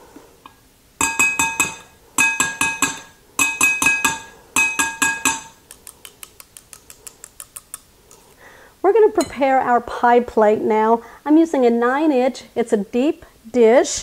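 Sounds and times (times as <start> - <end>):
bowl ringing: 1.0 - 5.6
mixer beaters knocking on bowl: 1.0 - 5.6.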